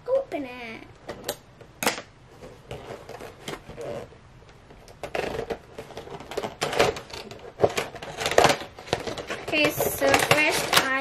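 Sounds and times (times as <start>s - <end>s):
fingers peeling tape off cardboard: 4.8s - 11.0s.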